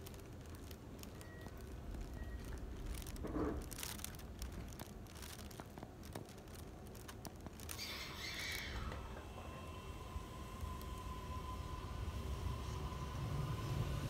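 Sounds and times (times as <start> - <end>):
electric train low rumble: 0.0 - 14.0
steady train whine: 8.1 - 14.0.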